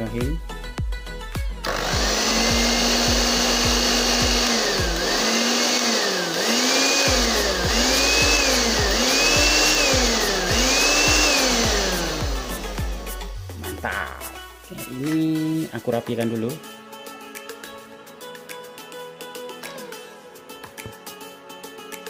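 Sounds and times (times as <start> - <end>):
blender motor speeding up and slowing: 1.6 - 13.4.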